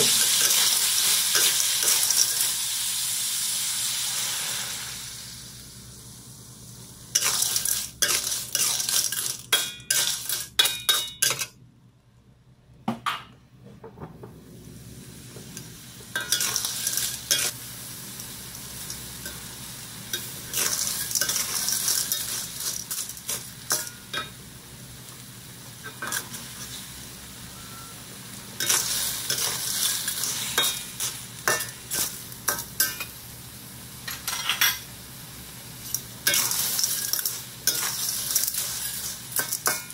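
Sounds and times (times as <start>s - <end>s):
clams sizzling in a wok: 0.0s - 11.6s, 14.6s - 39.9s
metal spatula scraping wok: 7.2s - 11.5s, 20.2s - 24.0s, 35.9s - 39.9s.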